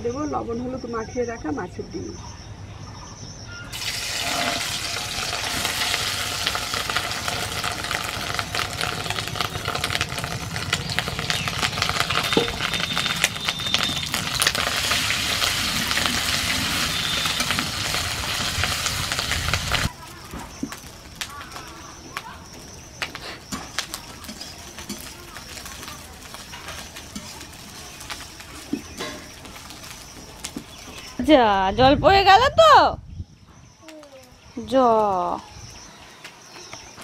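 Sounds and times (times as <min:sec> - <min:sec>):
fish roe sizzling in hot oil: 0:03.7 - 0:31.2.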